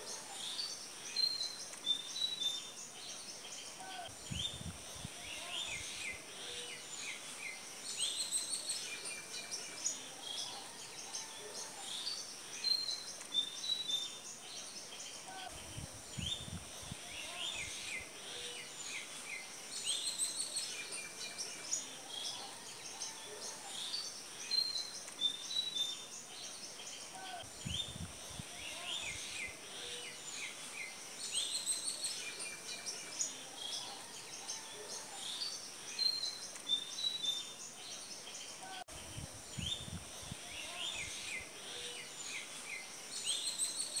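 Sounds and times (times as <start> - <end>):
birds chirping and twittering: 0.0 - 44.0.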